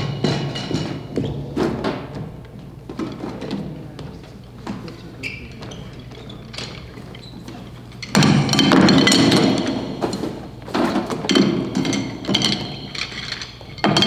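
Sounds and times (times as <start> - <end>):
hard objects knocking and clinking: 0.0 - 2.3, 6.0 - 14.0.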